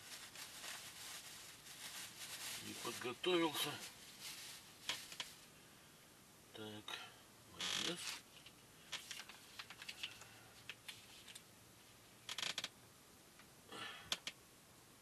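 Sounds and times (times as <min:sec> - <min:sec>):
plastic pouch crinkling: 0:00.0 - 0:05.4, 0:08.9 - 0:11.4.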